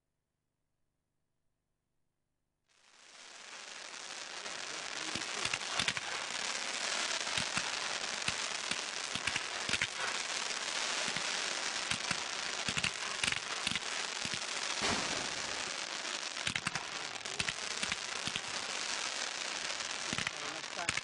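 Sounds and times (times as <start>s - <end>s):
fireworks crackling hiss: 2.7s - 21.0s
fireworks cracks and pops: 2.7s - 21.0s.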